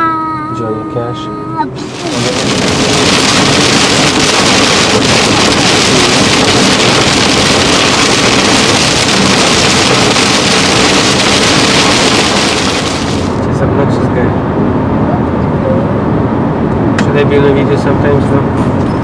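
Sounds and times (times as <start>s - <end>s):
heavy rain on car roof: 1.8s - 13.6s.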